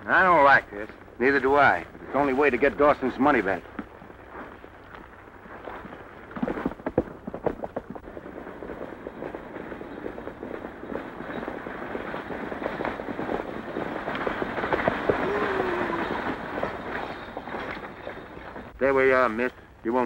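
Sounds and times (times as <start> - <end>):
galloping hooves: 0.0 - 20.0
stagecoach rattling: 7.5 - 20.0.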